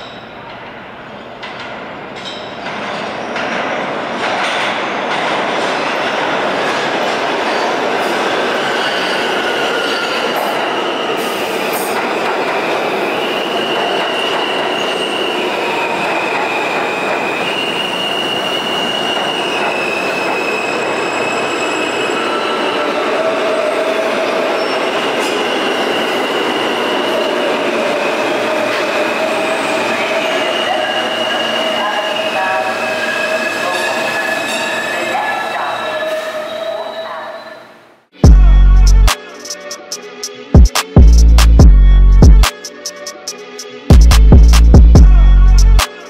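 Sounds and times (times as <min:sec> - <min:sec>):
rumble of train wheels: 0:00.0 - 0:08.6
train wheels squealing on rails: 0:07.4 - 0:37.8.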